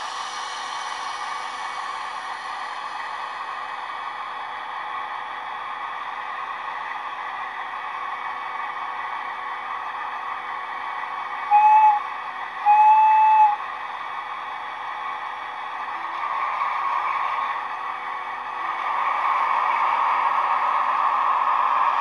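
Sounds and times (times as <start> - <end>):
diesel engine running: 0.0 - 22.0
locomotive warning whistle: 11.5 - 13.6.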